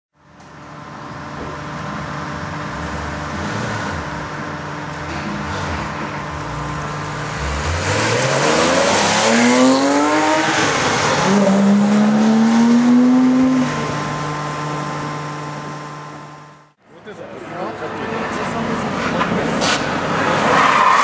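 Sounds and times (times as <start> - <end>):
car engine revving hard: 2.7 - 4.4, 5.4 - 16.6.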